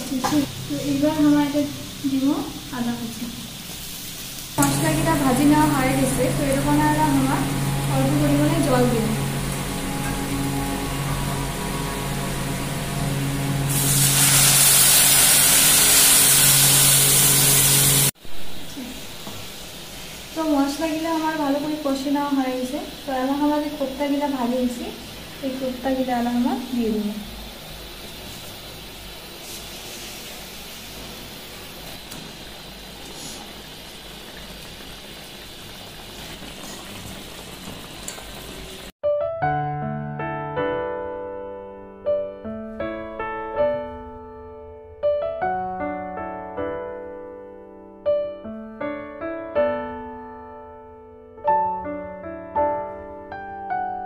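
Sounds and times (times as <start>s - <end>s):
water sizzling in hot oil: 0.0s - 39.0s.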